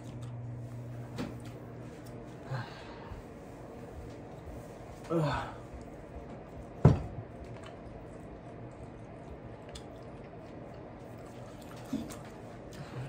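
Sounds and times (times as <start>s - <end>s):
person chewing food: 0.0s - 1.0s, 5.6s - 13.0s.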